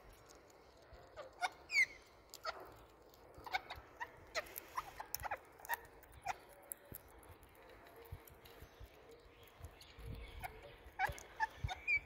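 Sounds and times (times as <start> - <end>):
beak clicking on seed shells: 0.0 - 12.0
parakeets squeaky chirps: 1.0 - 6.6, 9.4 - 12.0.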